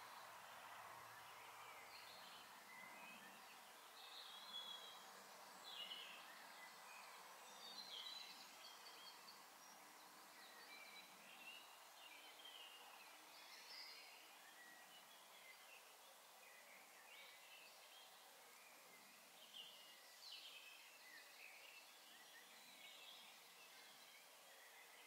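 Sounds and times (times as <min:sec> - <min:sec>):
small birds chirping: 0:00.0 - 0:25.0
steady background hiss: 0:00.0 - 0:25.0.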